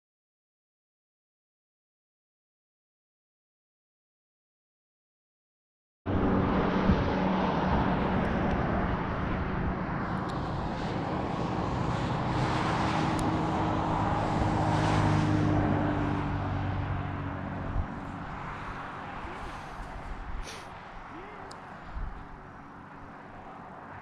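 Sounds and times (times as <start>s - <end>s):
road and wind noise: 6.1s - 24.0s
vehicle engine hum: 6.1s - 24.0s.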